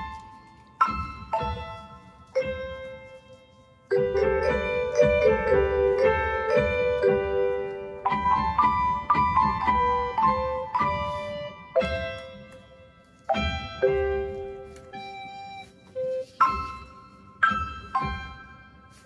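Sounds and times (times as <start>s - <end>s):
keyboard notes music: 0.0s - 19.0s.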